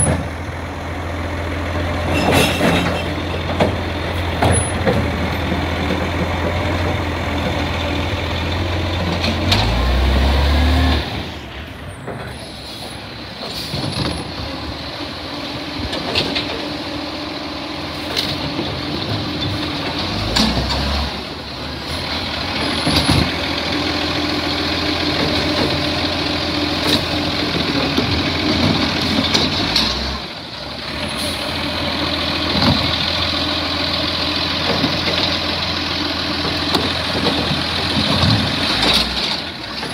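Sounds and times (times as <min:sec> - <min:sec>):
diesel engine running: 0:00.0 - 0:39.9
bins banging: 0:02.1 - 0:06.8
air brakes hissing: 0:12.2 - 0:13.9.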